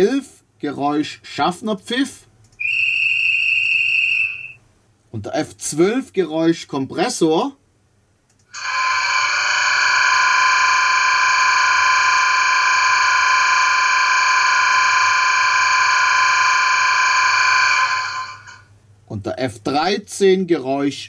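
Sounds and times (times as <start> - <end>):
buzzing air compressor sound from loudspeaker: 8.6 - 18.6.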